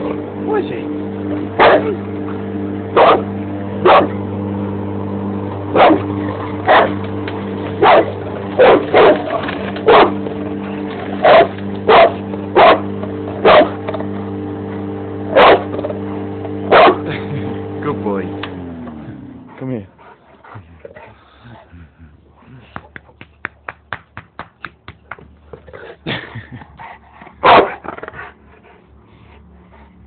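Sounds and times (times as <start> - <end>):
lawn mower engine humming: 0.0 - 30.0
dog barking: 1.6 - 2.0, 3.0 - 3.2, 3.8 - 4.2, 5.8 - 6.0, 6.7 - 7.0, 7.8 - 10.2, 11.2 - 12.8, 13.4 - 13.8, 15.4 - 15.7, 16.7 - 17.0, 27.4 - 27.8.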